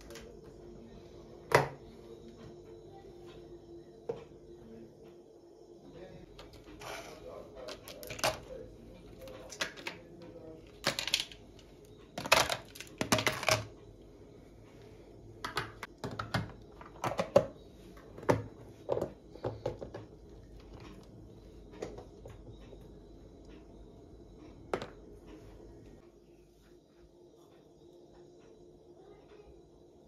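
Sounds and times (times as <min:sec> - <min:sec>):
ice cubes and cups clinking: 0:10.8 - 0:11.4.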